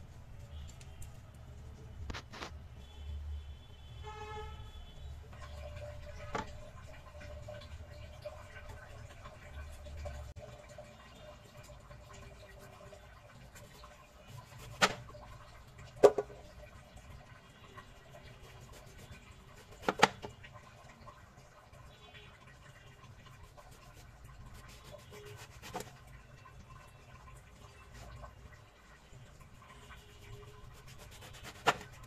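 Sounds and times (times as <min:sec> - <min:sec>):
knife cutting eggplant: 0:14.5 - 0:15.0, 0:18.6 - 0:20.3, 0:24.5 - 0:25.9, 0:30.6 - 0:32.0.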